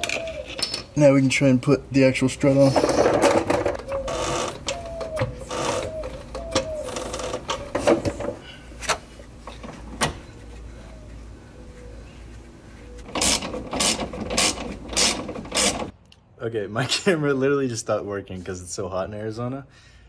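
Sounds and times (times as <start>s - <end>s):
hand ratchet clicking: 13.1s - 15.9s.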